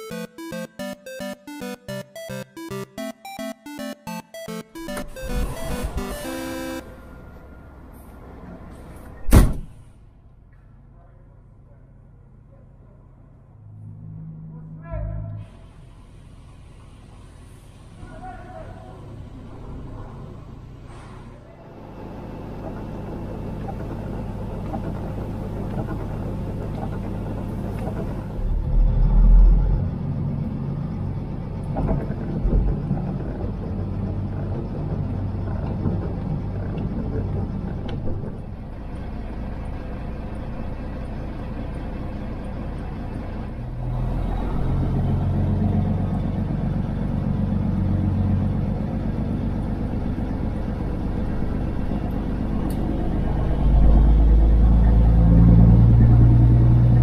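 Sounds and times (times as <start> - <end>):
truck diesel engine rumble: 21.6 - 57.0.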